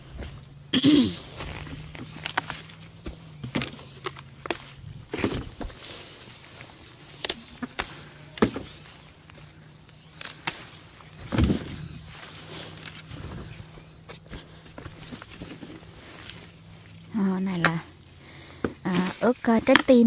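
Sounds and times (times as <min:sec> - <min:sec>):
leaves rustling: 0:00.0 - 0:20.0
low steady hum: 0:00.0 - 0:20.0
stems snapping: 0:01.6 - 0:02.8, 0:03.4 - 0:05.4, 0:07.1 - 0:13.3, 0:17.2 - 0:17.8, 0:18.8 - 0:20.0.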